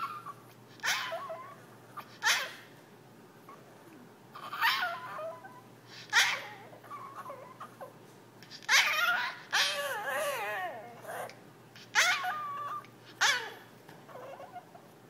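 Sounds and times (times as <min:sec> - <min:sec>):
dog whining: 0:00.0 - 0:02.6, 0:04.3 - 0:14.9
small dog yipping: 0:00.0 - 0:02.6, 0:04.4 - 0:14.8.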